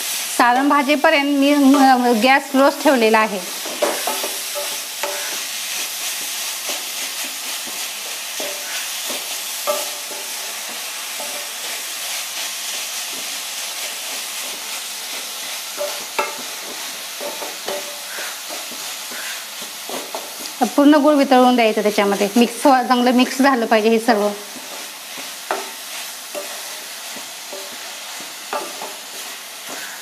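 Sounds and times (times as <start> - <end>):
frying hiss: 0.0 - 30.0
wooden spatula scraping pan: 3.6 - 30.0
spatula knocking on pan: 3.7 - 5.4, 6.2 - 11.6, 14.0 - 20.6, 24.4 - 30.0.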